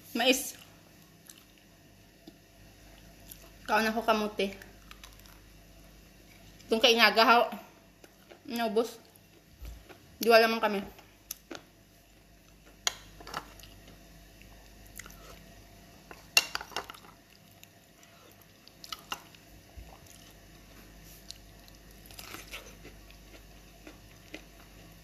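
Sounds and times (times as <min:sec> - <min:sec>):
chewing and biting: 0:17.3 - 0:24.8.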